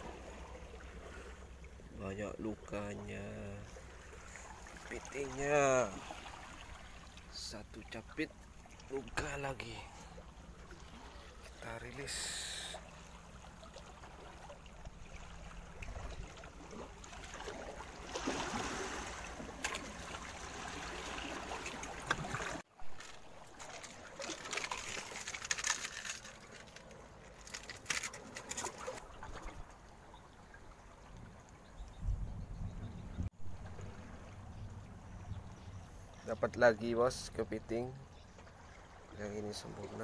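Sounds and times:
seawater lapping among rocks: 0:00.0 - 0:32.0, 0:33.3 - 0:40.0
handling clicks and rustles: 0:21.7 - 0:29.6.

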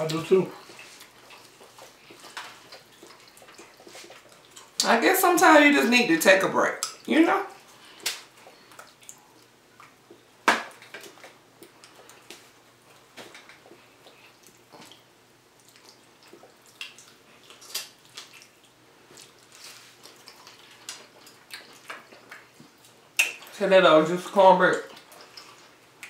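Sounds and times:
wet chewing: 0:00.0 - 0:05.0, 0:06.7 - 0:23.5, 0:24.7 - 0:26.0
lip smacks: 0:07.8 - 0:23.5.

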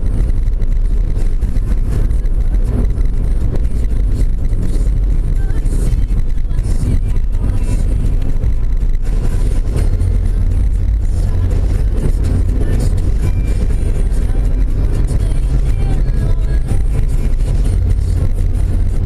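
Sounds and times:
car cabin road noise: 0:00.0 - 0:19.0.

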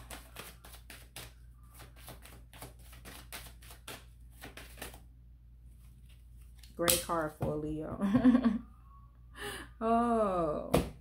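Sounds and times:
cards being shuffled: 0:00.0 - 0:05.0.

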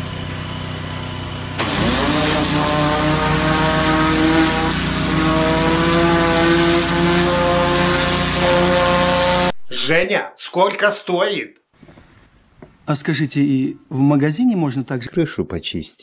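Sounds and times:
high-pressure water jet hissing: 0:01.6 - 0:09.6.

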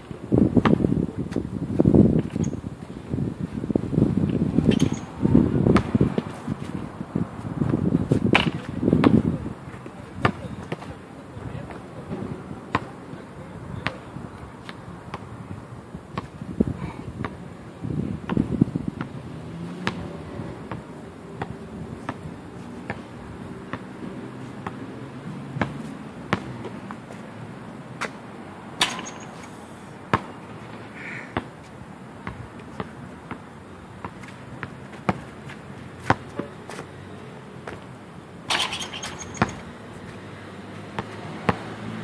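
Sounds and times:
basketball bouncing on concrete: 0:00.6 - 0:00.9, 0:05.7 - 0:06.3, 0:07.6 - 0:09.4, 0:10.2 - 0:10.9, 0:12.7 - 0:12.9, 0:18.2 - 0:22.2, 0:24.6 - 0:24.8, 0:25.6 - 0:27.0, 0:30.1 - 0:30.4, 0:32.2 - 0:36.9, 0:38.5 - 0:39.7, 0:40.8 - 0:41.8.

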